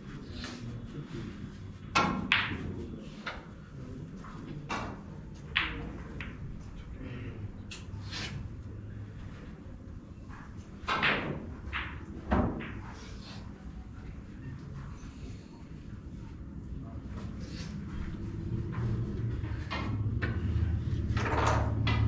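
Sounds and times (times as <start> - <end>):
sharp knocks and clicks: 19.6 - 22.0.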